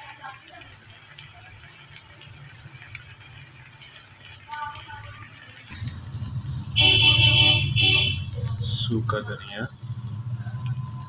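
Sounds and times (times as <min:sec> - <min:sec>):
steady pitched honk: 0:06.7 - 0:08.4.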